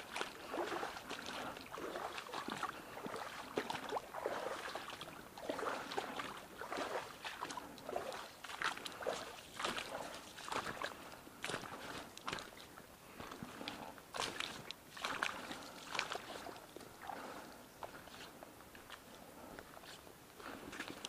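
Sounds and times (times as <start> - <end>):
footsteps splashing in water: 0.0 - 21.0.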